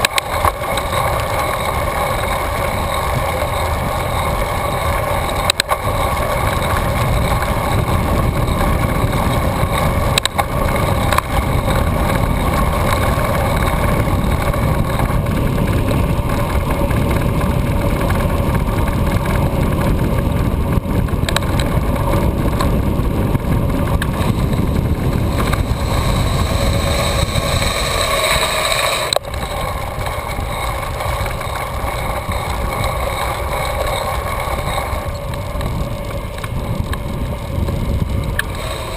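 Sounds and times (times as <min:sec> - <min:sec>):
tyres rolling on asphalt: 0:00.0 - 0:38.9
wind rush on microphone: 0:00.0 - 0:38.9.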